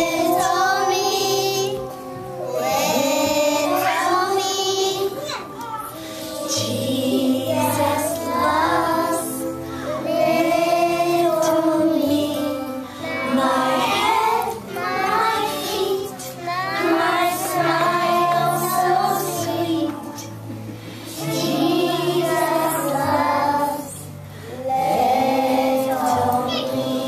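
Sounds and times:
children singing in unison: 0.0 - 27.0.

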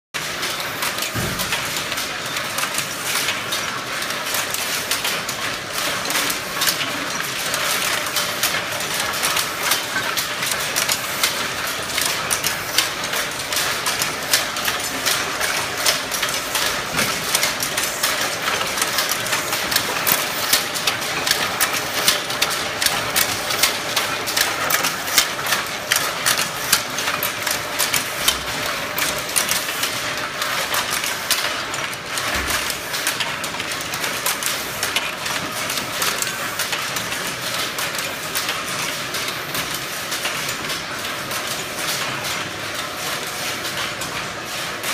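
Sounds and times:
weaving machine clattering: 0.2 - 44.9.

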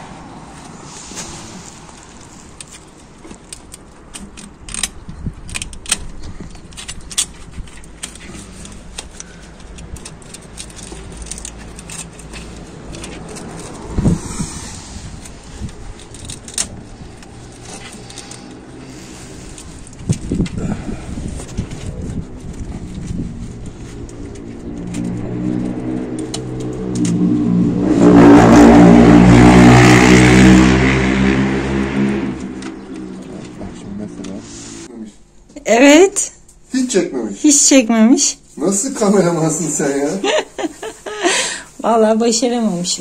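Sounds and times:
cables clicking and rattling: 1.9 - 13.9, 15.2 - 20.7, 21.3 - 27.4.

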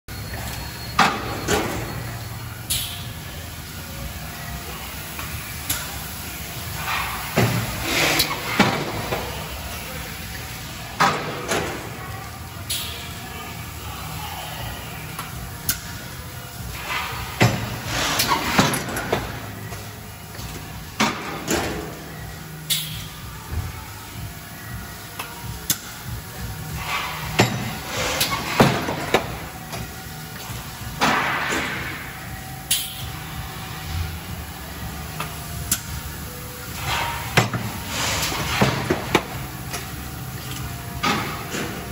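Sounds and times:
factory machinery humming: 0.1 - 41.9.

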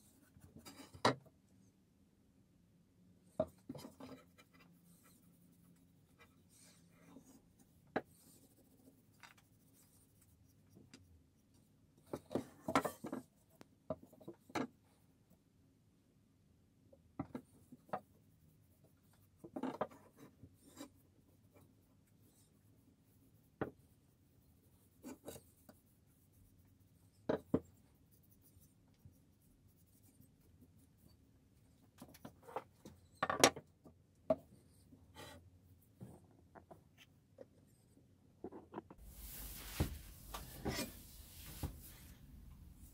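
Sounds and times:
cloth rubbing wood: 39.0 - 42.9.

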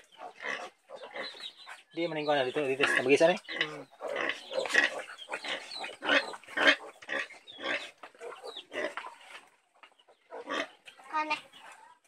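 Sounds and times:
pigs grunting: 0.0 - 1.5, 2.5 - 9.4, 10.2 - 10.8.

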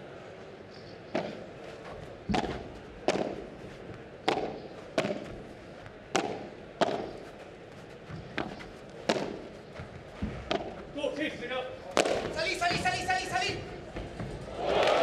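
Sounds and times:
padel ball struck by rackets: 1.1 - 1.4, 2.3 - 3.6, 4.2 - 5.4, 6.1 - 7.2, 8.1 - 9.5, 10.2 - 10.8, 12.0 - 12.9.

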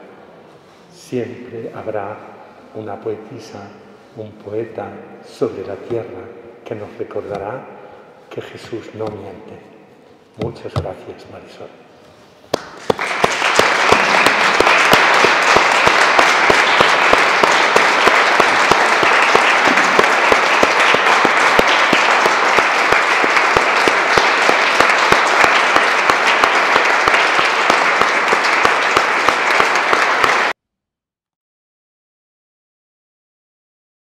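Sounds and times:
audience applauding: 12.5 - 30.6.

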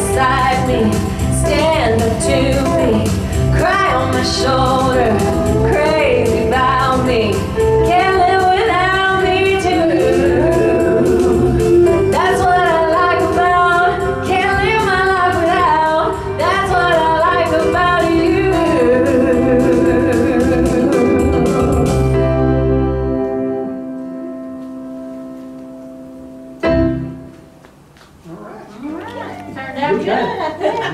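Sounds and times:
women singing together: 0.0 - 20.8
pop-rock band playing: 0.0 - 25.6.

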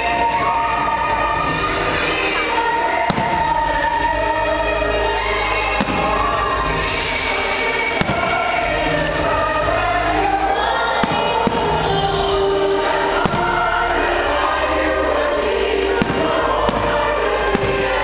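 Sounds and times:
choral music: 0.0 - 18.0
fireworks bangs: 3.0 - 3.9, 8.0 - 8.8, 11.0 - 13.8, 16.0 - 18.0.

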